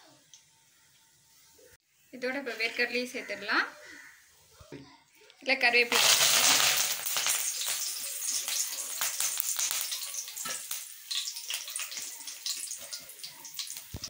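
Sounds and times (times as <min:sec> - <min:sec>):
leaves sizzling in hot oil: 0:05.6 - 0:14.0.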